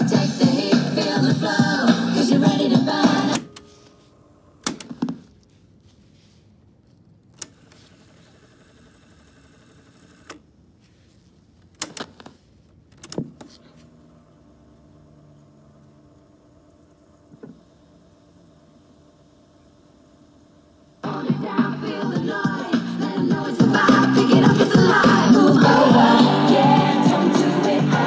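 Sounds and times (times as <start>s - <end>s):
cassette music playing: 0.0s - 5.0s, 21.0s - 28.0s
cassette mechanism whirr: 0.0s - 5.5s, 6.9s - 10.6s, 11.6s - 28.0s.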